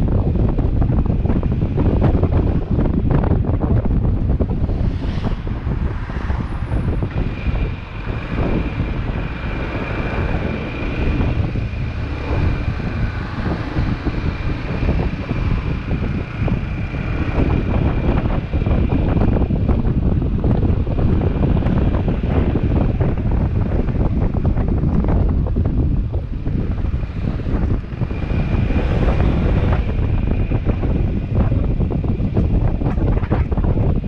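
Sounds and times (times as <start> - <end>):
wind rushing over microphone: 0.0 - 34.0
motorcycle engine running: 5.4 - 34.0.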